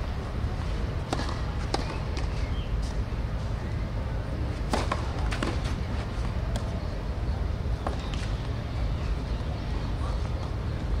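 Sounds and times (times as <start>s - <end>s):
steady low rumble: 0.0s - 11.0s
tennis ball hits: 1.0s - 2.4s, 4.6s - 5.8s.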